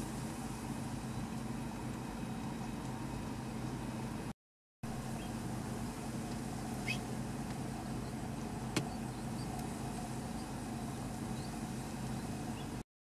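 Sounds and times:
low background hum: 0:00.0 - 0:04.3, 0:04.9 - 0:12.8
faint high chirp: 0:06.8 - 0:07.1.

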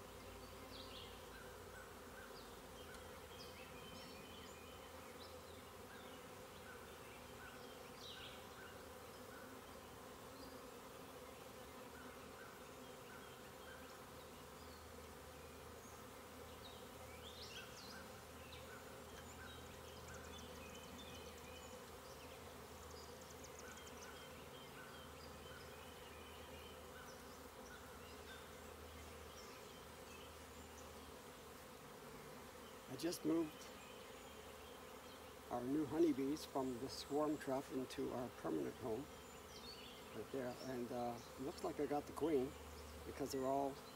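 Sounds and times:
honeybees humming: 0:00.0 - 0:43.9.

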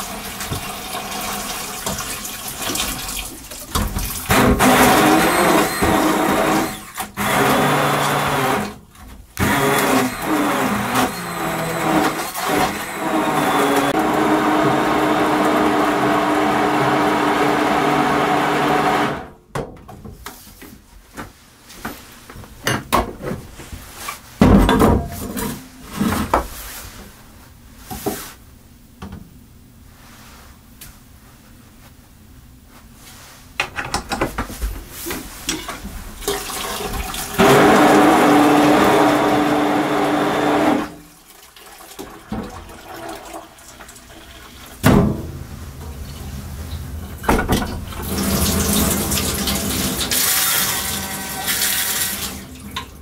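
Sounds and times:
water running from tap: 0:00.0 - 0:04.3, 0:36.2 - 0:37.4, 0:41.2 - 0:44.8, 0:47.8 - 0:52.9.

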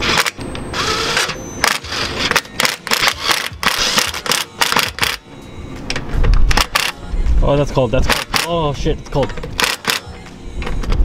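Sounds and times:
tool rattling clicks: 0:08.1 - 0:08.6.

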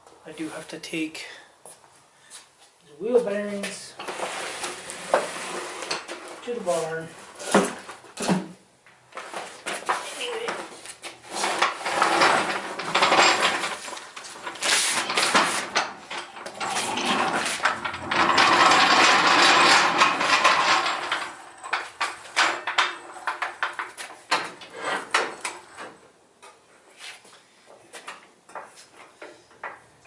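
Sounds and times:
floor jack wheels rattling on concrete: 0:04.0 - 0:08.3, 0:09.2 - 0:26.0
metal clanks and knocks: 0:11.6 - 0:26.0.

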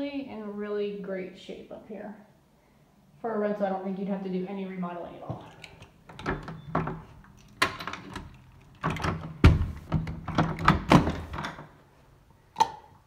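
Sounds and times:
door knocks and thumps: 0:08.8 - 0:11.6.

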